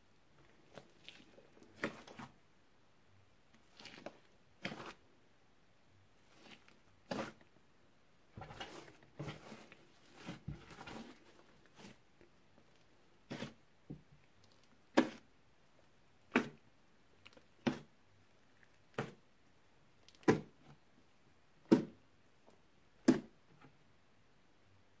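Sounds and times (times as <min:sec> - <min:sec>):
slime squelches: 0:00.4 - 0:02.4, 0:03.5 - 0:05.1, 0:06.2 - 0:07.6, 0:08.3 - 0:15.3
slime squishing: 0:00.4 - 0:02.4, 0:03.5 - 0:05.0, 0:06.2 - 0:07.5, 0:08.4 - 0:13.6.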